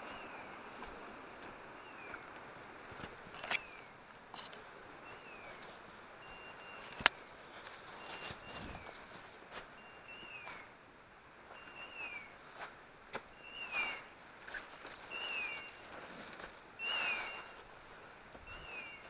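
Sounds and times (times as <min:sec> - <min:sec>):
footsteps crunching through dry leaves: 0:06.7 - 0:10.6.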